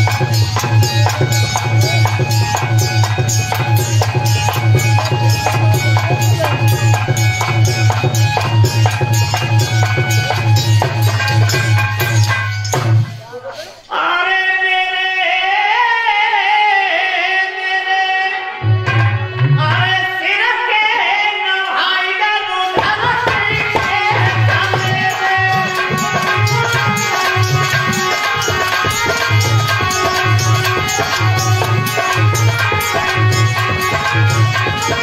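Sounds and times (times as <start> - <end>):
harmonium chords: 0.0 - 13.0, 22.0 - 35.0
hand drum rhythm: 0.0 - 13.2, 22.8 - 35.0
man singing: 13.7 - 35.0.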